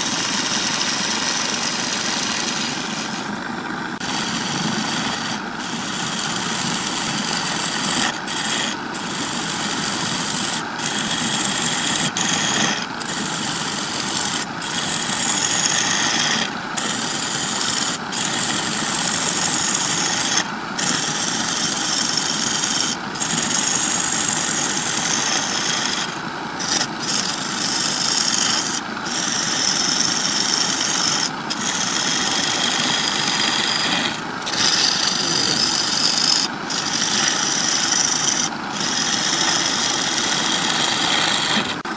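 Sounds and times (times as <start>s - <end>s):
gouge cutting wood on lathe: 0.0s - 41.9s
lathe motor hum: 0.0s - 41.9s.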